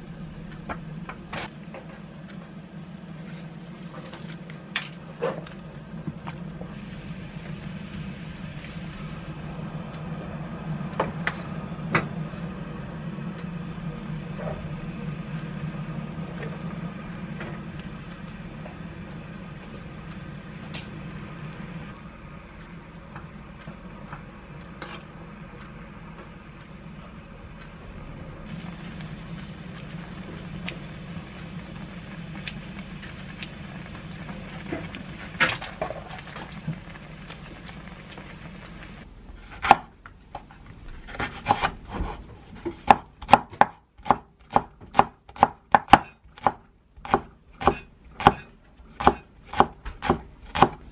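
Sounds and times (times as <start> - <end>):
broth bubbling in a pot: 0.0 - 25.8, 28.4 - 39.1
gas stove hum: 0.0 - 50.9.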